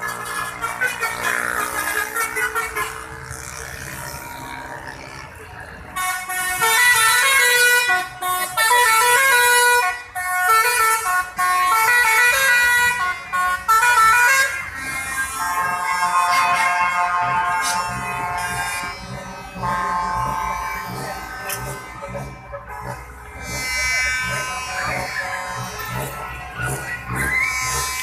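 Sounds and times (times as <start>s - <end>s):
passing traffic: 0.0s - 28.0s
musical air horn playing a tune: 6.0s - 28.0s.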